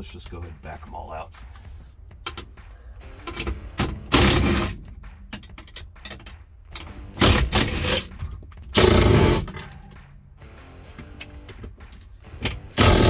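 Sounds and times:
ratchet wrench clicking: 0:12.8 - 0:13.0.

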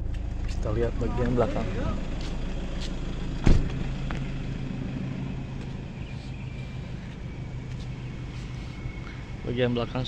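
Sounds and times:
diesel engine idling: 0:00.0 - 0:10.0
loud thump: 0:03.4 - 0:03.8.

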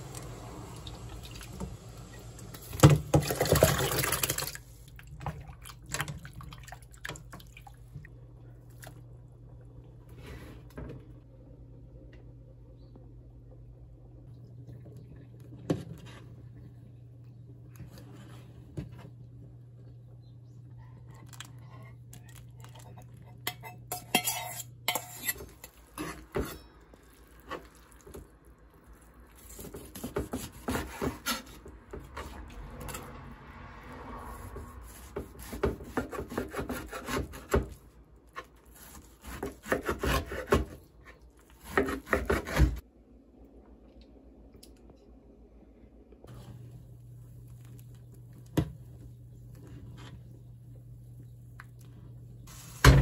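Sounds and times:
knife chopping on wooden board: 0:38.8 - 0:40.8, 0:41.6 - 0:42.8.

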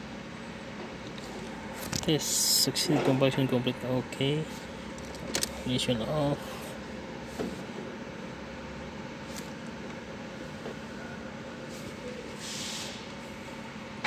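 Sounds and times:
short hiss: 0:12.4 - 0:13.1.

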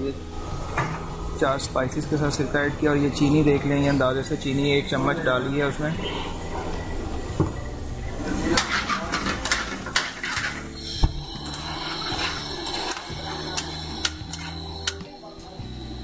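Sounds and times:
low kitchen hum: 0:00.0 - 0:16.0
metal utensils clinking on pans: 0:08.5 - 0:10.7.

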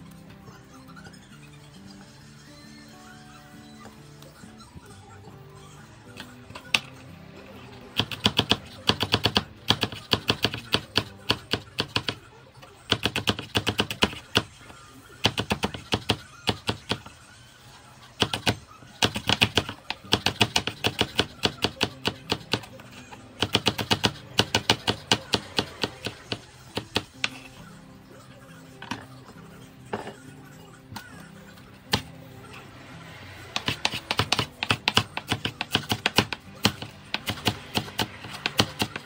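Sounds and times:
knife chopping on wooden board: 0:33.6 - 0:39.0.

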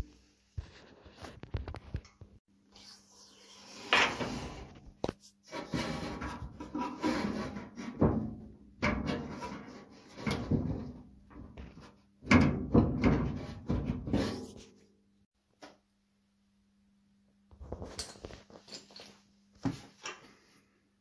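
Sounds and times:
steel fender knocking and rattling: 0:07.9 - 0:14.3.

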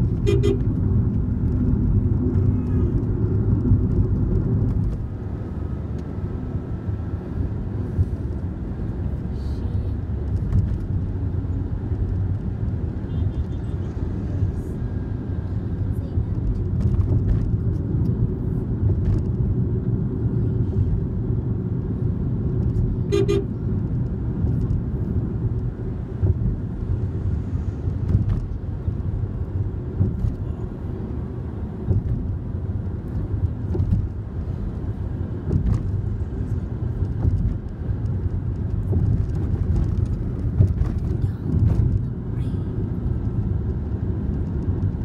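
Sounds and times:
car engine and tyres rumbling: 0:00.0 - 0:45.0
car horn toot: 0:00.2 - 0:00.7, 0:23.1 - 0:23.6.

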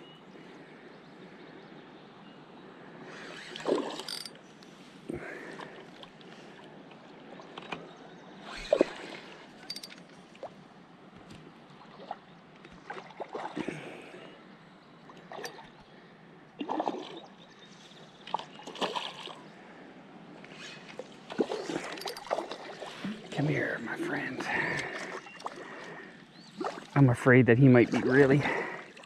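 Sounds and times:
river water splashing: 0:03.1 - 0:04.6, 0:08.3 - 0:15.9, 0:16.6 - 0:19.8, 0:20.4 - 0:29.0.

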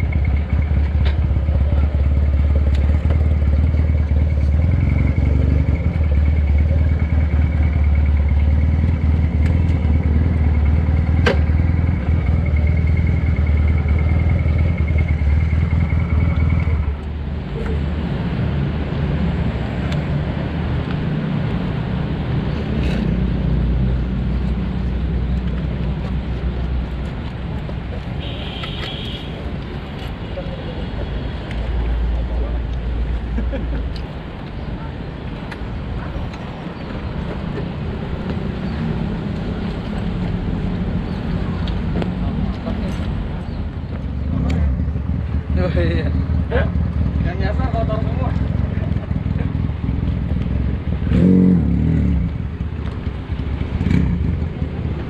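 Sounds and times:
motorcycle engine running: 0:00.0 - 0:17.1, 0:43.9 - 0:55.0.

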